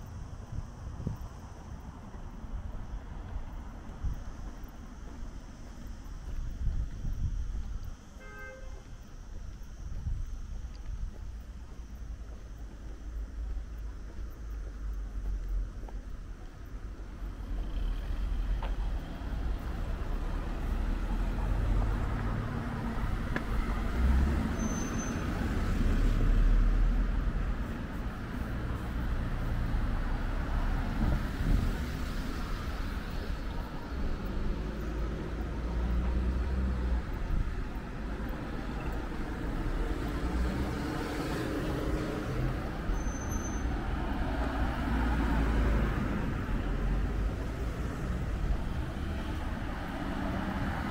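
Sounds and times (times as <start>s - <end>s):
vehicles passing: 0.0s - 50.9s
short high squeaks: 24.5s - 25.3s, 42.9s - 43.8s.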